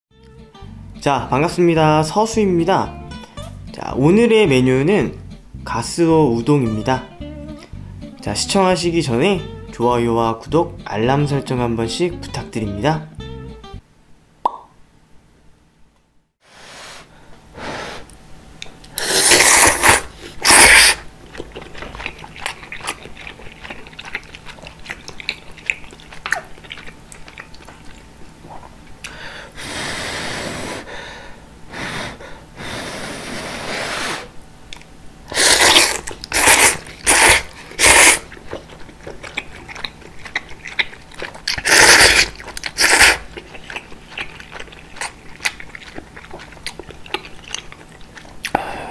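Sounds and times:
chewing: 18.6s - 29.2s, 34.7s - 48.6s
slurping noodles: 18.9s - 27.6s, 29.6s - 30.9s, 31.8s - 34.4s, 35.3s - 47.8s.

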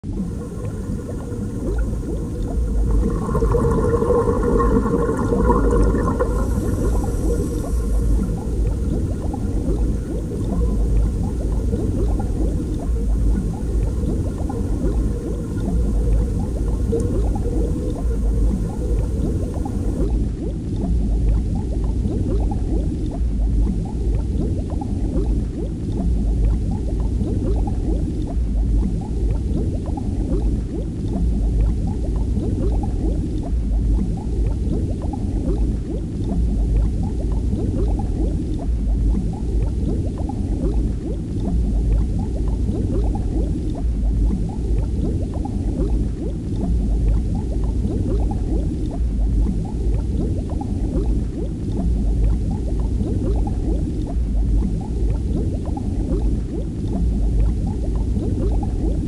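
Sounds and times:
low rumble: 0.0s - 20.3s
underwater bubbling and gurgling: 0.0s - 59.0s.

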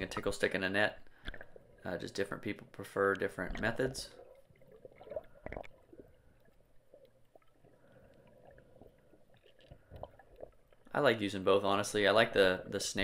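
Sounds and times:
underwater clicks and pops: 0.0s - 0.4s, 1.0s - 1.6s, 2.6s - 5.9s, 9.3s - 10.9s.

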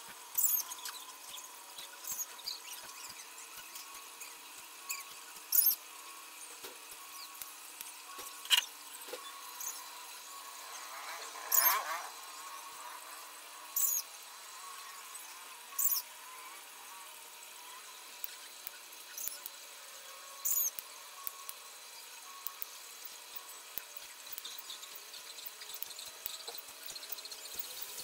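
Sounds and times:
wire scraping squeal: 0.3s - 6.4s, 8.1s - 16.7s, 17.4s - 19.5s, 20.4s - 21.4s.

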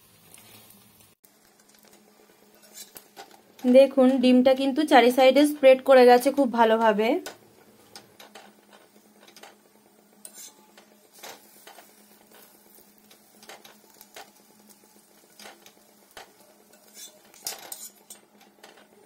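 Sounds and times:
spatula scraping on griddle: 2.4s - 4.2s, 7.9s - 19.0s.

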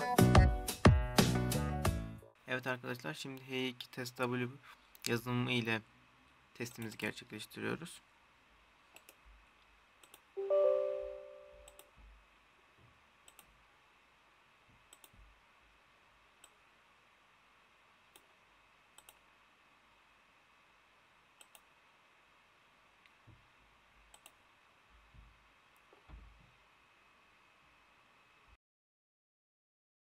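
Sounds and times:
computer mouse clicks: 8.9s - 9.2s, 10.0s - 10.3s, 13.2s - 13.6s, 14.9s - 15.2s, 16.4s - 16.6s, 19.0s - 19.2s, 21.4s - 21.7s, 24.1s - 24.4s
computer alert chime: 10.4s - 11.7s.

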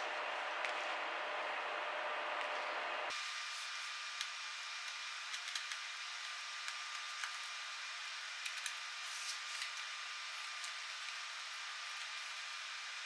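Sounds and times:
steady hiss: 2.6s - 13.0s.

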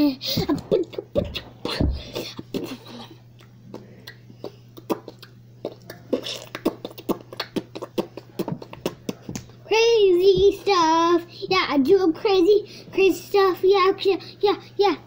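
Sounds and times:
child beatboxing mouth sounds: 0.0s - 11.7s
faint low hum: 0.0s - 15.0s.

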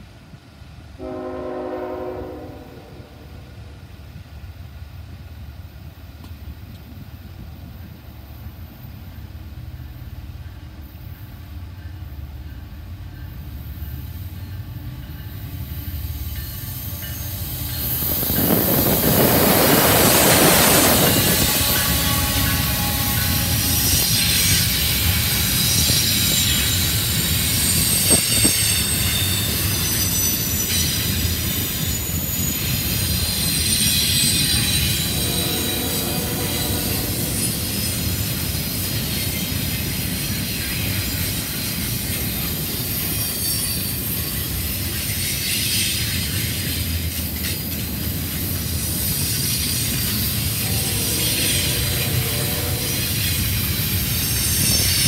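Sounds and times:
train wheels rumbling on rail: 0.0s - 55.0s
high-pitched wheel squeal: 16.6s - 38.3s.

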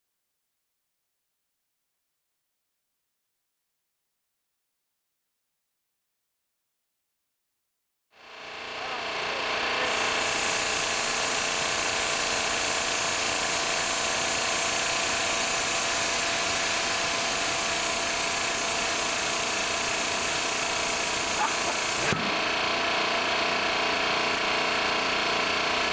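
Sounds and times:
air compressor running: 8.2s - 25.9s.

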